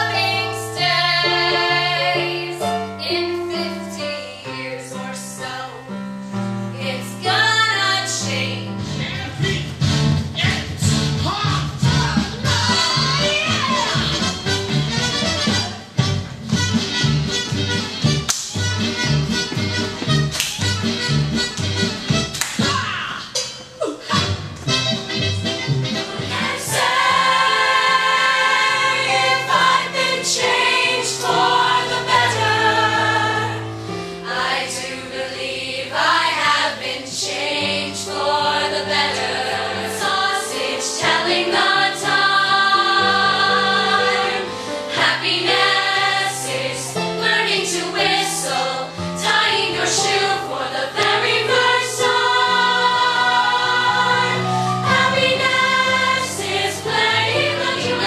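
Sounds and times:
chorus of girls singing: 0.0s - 6.0s, 6.8s - 8.7s, 12.1s - 14.1s, 26.0s - 58.0s
instrumental accompaniment: 8.7s - 37.0s, 38.2s - 58.0s.

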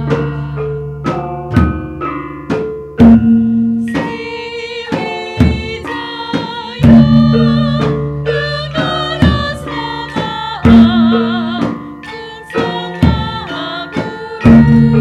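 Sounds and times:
bronze metallophones ringing: 0.0s - 15.0s
drum strokes: 0.0s - 15.0s
wavering higher melody line: 0.0s - 15.0s
gong strokes: 14.4s - 15.0s.

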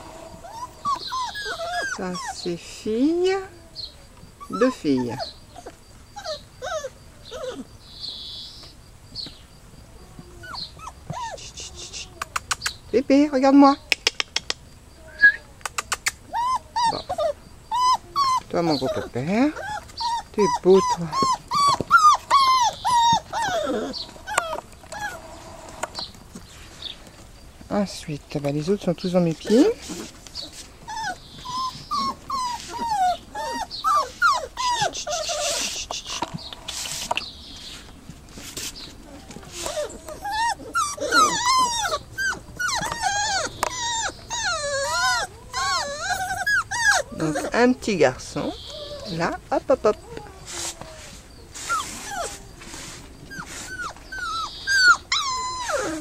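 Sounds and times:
puppies whimpering: 0.0s - 8.6s, 9.9s - 12.4s, 15.0s - 26.4s, 28.6s - 56.0s
brief hiss: 35.6s - 38.8s.

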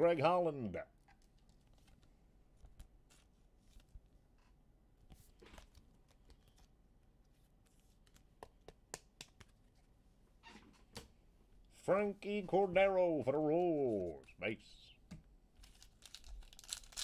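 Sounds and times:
trading cards rustling: 15.6s - 17.0s.

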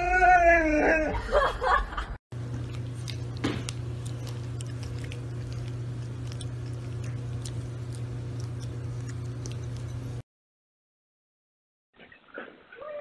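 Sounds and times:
steady low hum: 1.6s - 10.2s
puppy crunching dry kibble: 2.4s - 10.2s.

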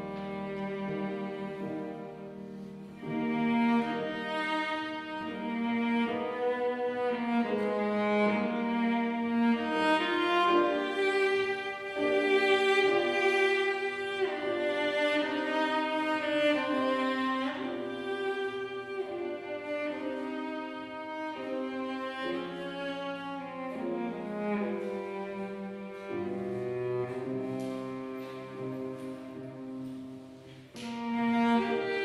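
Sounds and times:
cello playing slow melody: 0.0s - 32.0s.

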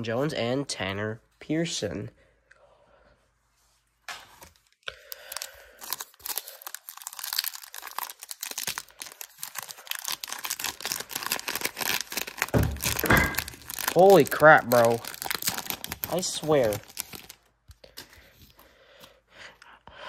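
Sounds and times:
foil wrapper crinkling and tearing: 4.6s - 18.6s.

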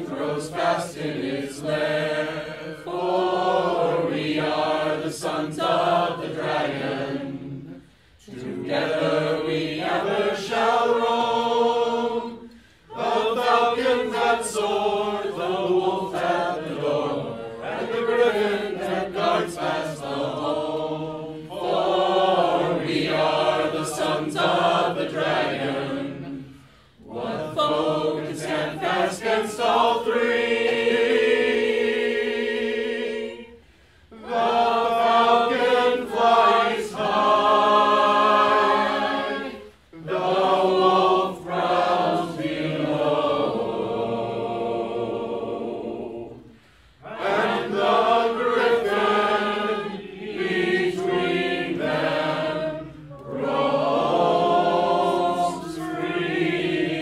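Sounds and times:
man breathing in: 46.5s - 47.0s.

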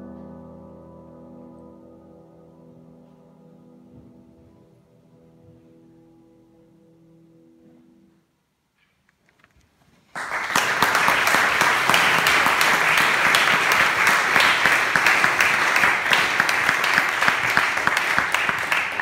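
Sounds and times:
audience applauding: 10.1s - 19.0s.

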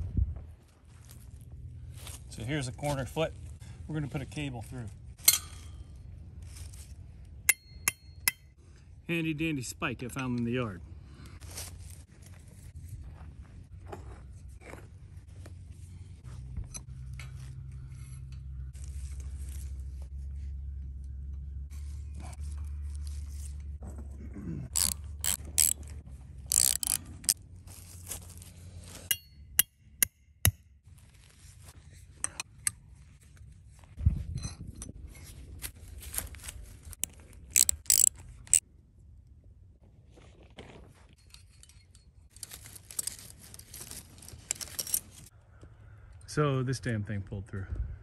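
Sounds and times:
metallic clicks of hardware: 24.8s - 25.8s, 26.5s - 27.4s, 37.5s - 38.6s.

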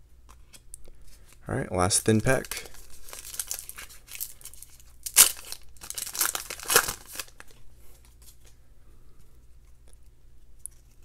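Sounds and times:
foil wrapper crinkling: 2.0s - 7.6s
foil wrapper tearing: 2.2s - 7.4s.

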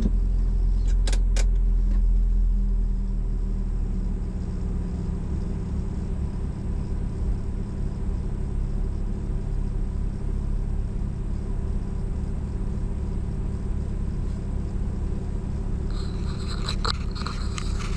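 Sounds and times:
car engine idling: 0.0s - 17.9s
scraping: 15.9s - 17.9s.

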